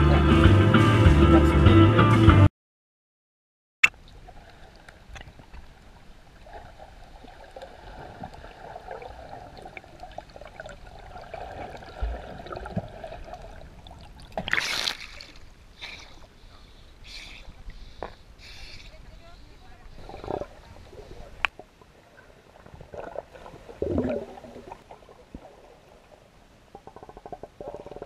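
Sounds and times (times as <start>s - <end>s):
water splashing and sloshing: 3.8s - 16.7s, 17.4s - 28.0s
underwater bubbling and gurgling: 3.9s - 16.7s, 19.8s - 28.0s.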